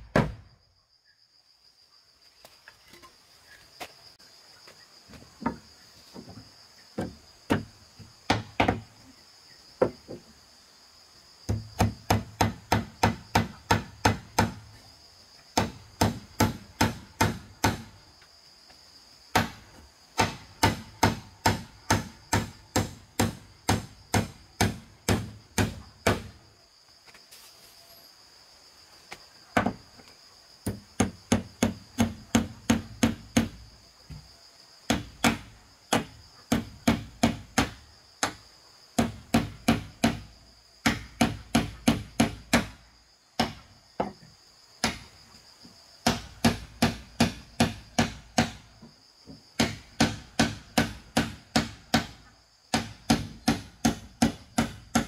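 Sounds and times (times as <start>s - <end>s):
hammer nailing wood: 0.0s - 0.4s, 8.3s - 8.8s, 11.5s - 14.6s, 15.6s - 17.9s, 20.2s - 26.3s, 30.6s - 33.6s, 34.9s - 38.4s, 39.0s - 42.8s, 46.0s - 48.6s, 49.6s - 55.0s
high insect buzz: 0.0s - 55.0s.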